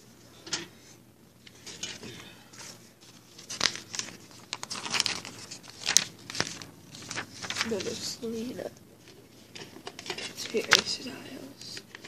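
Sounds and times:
paper rustling and crinkling: 1.4 - 12.0
sharp paper crackles: 2.6 - 8.4, 9.0 - 11.0.

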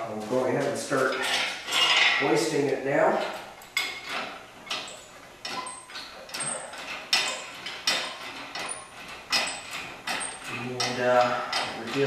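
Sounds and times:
metallic clack of pump handle: 3.2 - 12.0.

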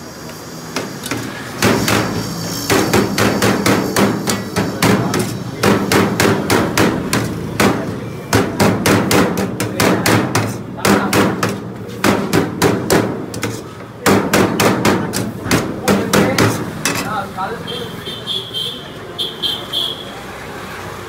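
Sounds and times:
cleaver chopping on steel tray: 0.8 - 17.2.

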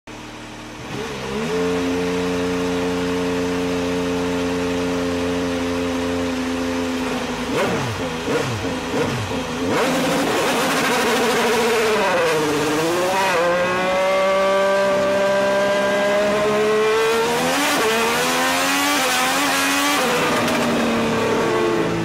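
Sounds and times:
race car engine revving: 0.3 - 22.0.

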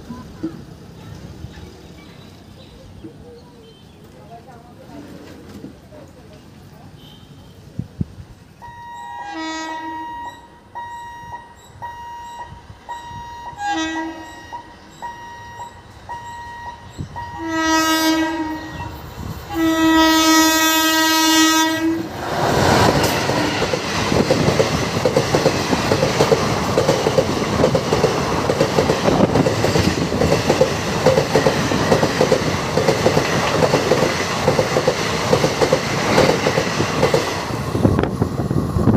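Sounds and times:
train passing rumble: 7.6 - 38.9
train horn blasts: 8.6 - 22.1
wheels clacking over rail joints: 22.1 - 38.2.

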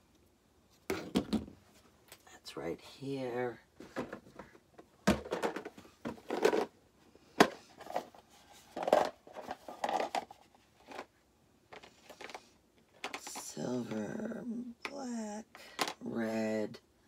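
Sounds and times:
plastic box clicks and knocks: 0.9 - 1.6, 3.8 - 6.7
rustling and shifting: 3.6 - 14.4.

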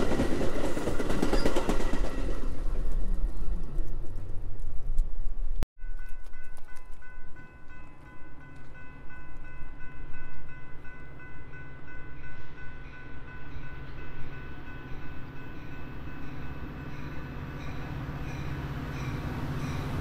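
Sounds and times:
train rumbling: 0.0 - 20.0
crossing warning bells ringing: 5.8 - 20.0.

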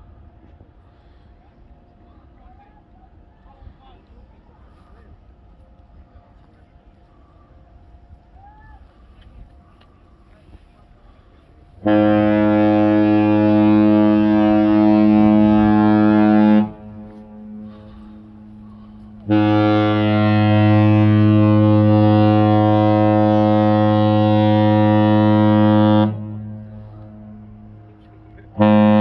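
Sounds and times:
deep ship horn blasts: 9.0 - 29.0.

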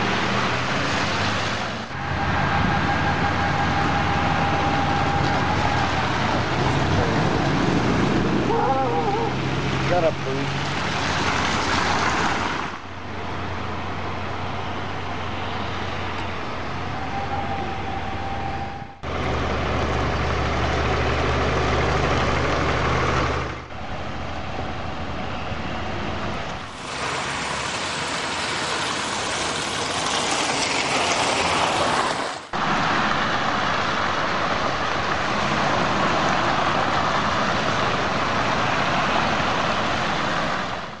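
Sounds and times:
vehicle engines running: 0.0 - 41.0
hail and rain on wet road: 26.7 - 32.5.

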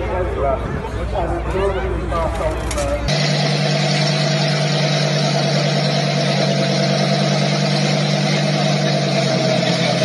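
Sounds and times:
car engine idling: 3.1 - 10.0.

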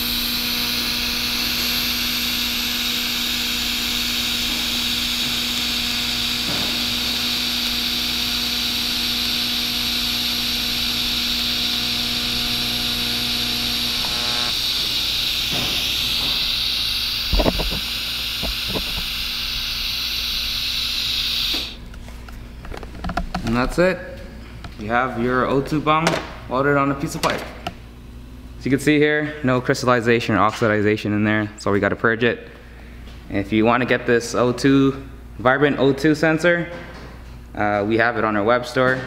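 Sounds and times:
welding torch hiss: 0.0 - 21.8
welder buzzing hum: 0.0 - 21.9.

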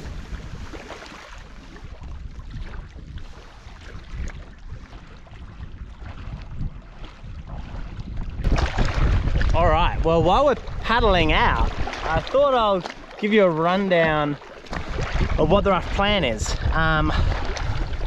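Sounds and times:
wind buffeting microphone: 0.0 - 18.0
waves lapping on rocks: 8.4 - 18.0.

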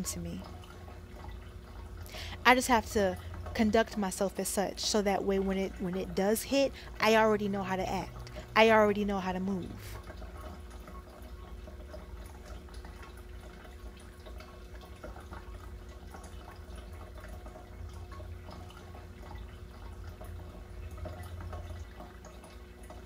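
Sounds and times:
faint hum: 0.0 - 23.0.

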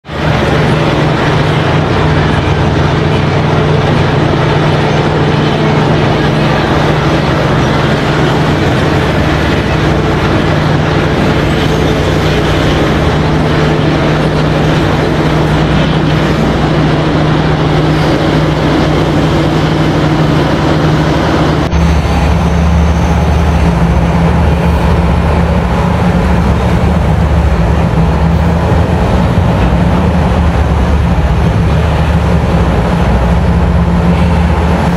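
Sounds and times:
excavator engine drone: 0.0 - 34.9
excavator loading haul truck: 0.0 - 34.9.

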